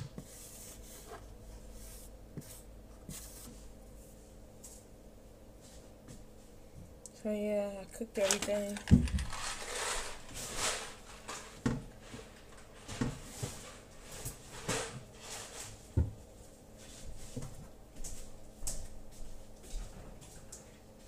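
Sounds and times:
kitchen items knocking: 8.2 - 10.1
rustling: 8.2 - 11.6.

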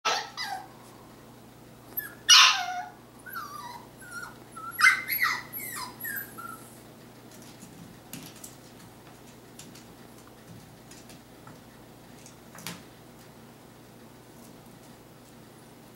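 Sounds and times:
puppy whimpering and yipping: 0.1 - 0.7, 1.9 - 6.8.

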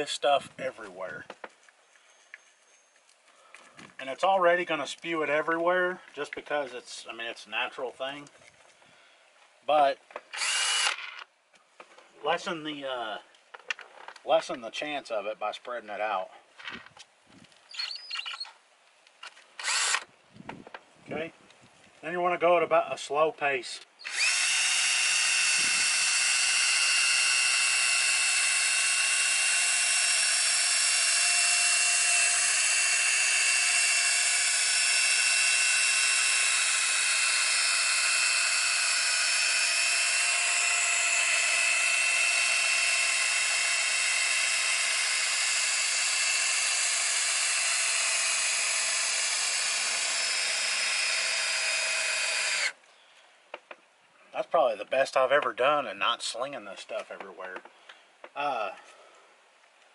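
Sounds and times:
cordless drill whining: 10.3 - 11.3, 17.7 - 18.5, 19.6 - 20.1, 24.0 - 52.8.

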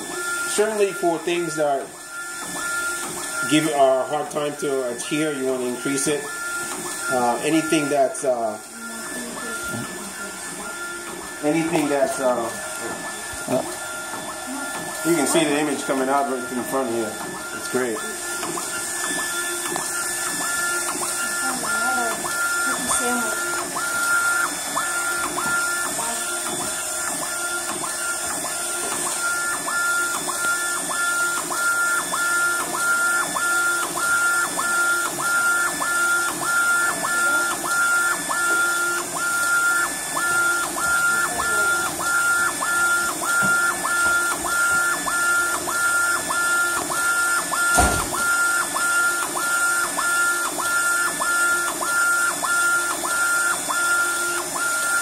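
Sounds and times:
machine hum: 0.0 - 55.0
print carriage whine: 0.0 - 55.0
sharp knock: 47.7 - 48.2.

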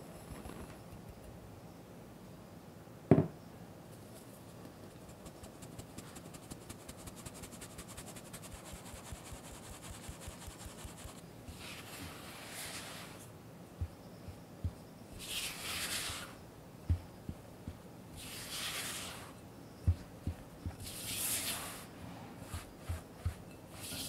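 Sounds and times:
spatula scraping flour in bowl: 8.4 - 13.3, 15.1 - 17.1, 18.1 - 24.0.

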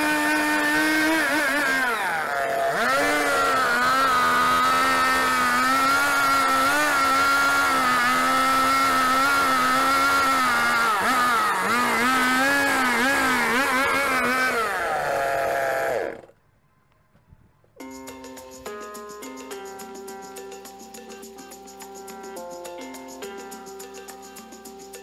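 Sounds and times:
chainsaw cutting wood: 0.0 - 16.4
chainsaw idling: 0.0 - 16.4.

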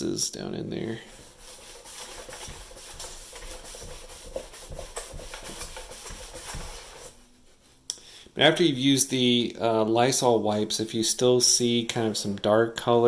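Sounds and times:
foam scrubbing plastic: 1.1 - 7.5.

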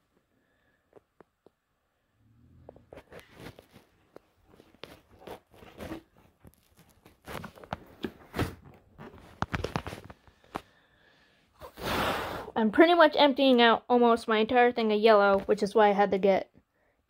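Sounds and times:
rustling: 2.6 - 10.8.

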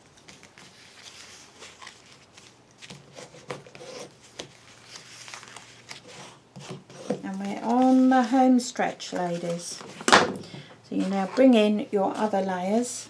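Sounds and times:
paper rustling and sliding: 0.0 - 10.1.

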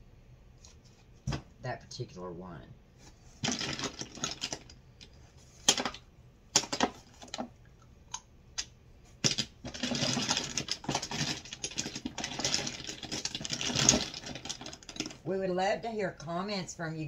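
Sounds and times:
rummaging rustling and clattering: 3.0 - 4.7, 6.6 - 7.5, 9.2 - 15.3
plastic items clicking and knocking: 3.4 - 15.3.

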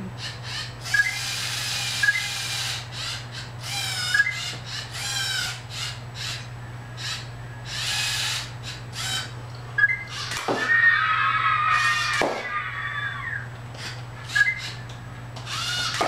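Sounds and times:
servo motors whirring: 0.6 - 5.6, 15.4 - 16.0.

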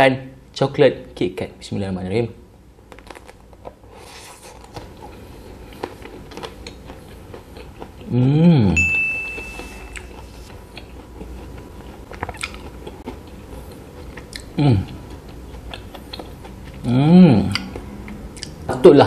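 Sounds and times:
crunchy chewing: 2.9 - 8.2, 9.9 - 18.6
person humming mmm: 8.0 - 10.3, 14.4 - 15.0, 16.8 - 17.8
short high beep: 8.8 - 10.2.

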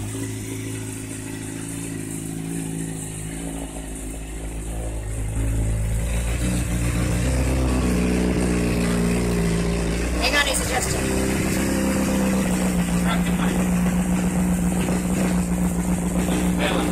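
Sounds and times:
scooter engine idling: 0.0 - 16.9.

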